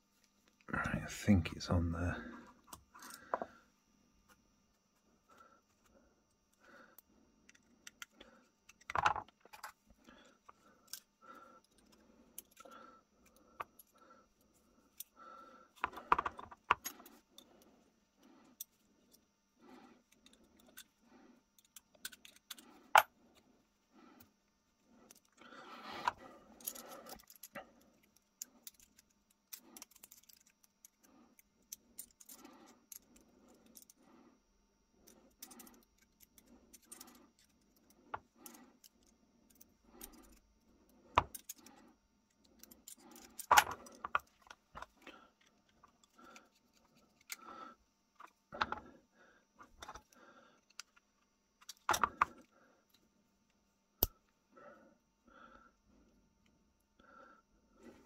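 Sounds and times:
small metal parts clicking: 6.5 - 14.0, 20.0 - 23.4, 25.0 - 34.0, 35.0 - 47.5, 49.6 - 53.0
metal parts scraping: 26.0 - 31.0.

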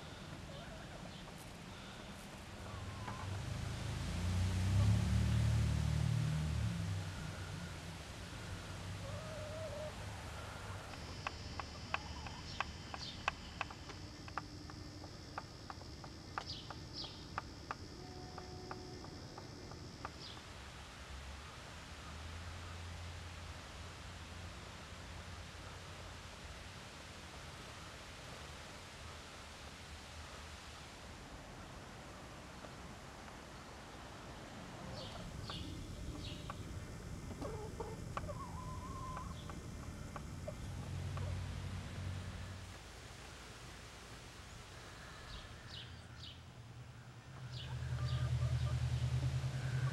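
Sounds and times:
low background hum: 0.0 - 49.9
chickens clucking and calling: 8.4 - 20.4, 34.8 - 41.5, 47.2 - 48.9.

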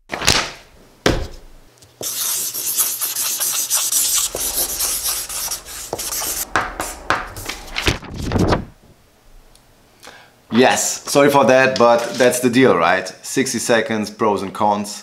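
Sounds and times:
felt-tip pen scratching paper: 2.0 - 6.4.

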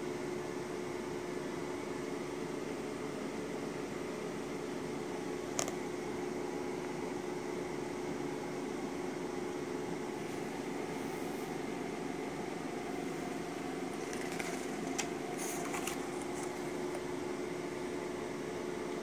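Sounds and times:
steady background hum: 0.0 - 19.0
paper pages rustling: 13.2 - 17.1.

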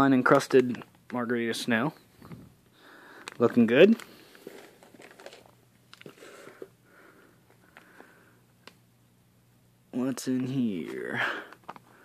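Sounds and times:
plastic bags crinkling: 3.1 - 6.6.

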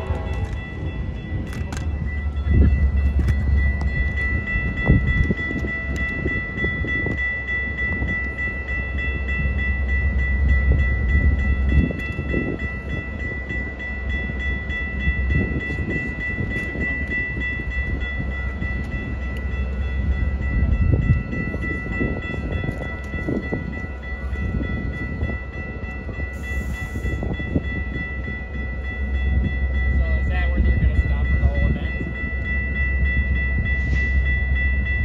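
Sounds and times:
steam locomotive rumbling: 0.0 - 35.0.

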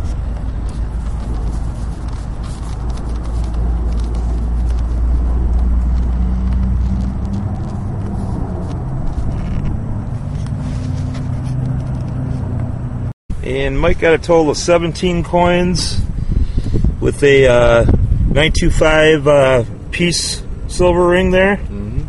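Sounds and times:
car cabin rumble: 0.0 - 13.1.

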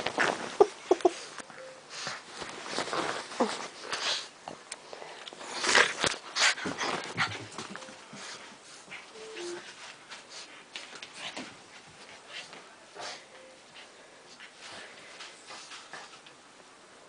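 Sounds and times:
scuffling against plush toy: 0.0 - 1.1, 1.9 - 4.4.

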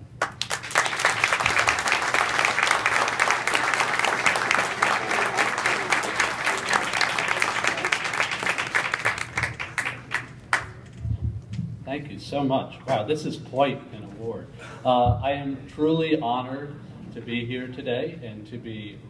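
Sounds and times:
audience applauding: 0.2 - 10.9.

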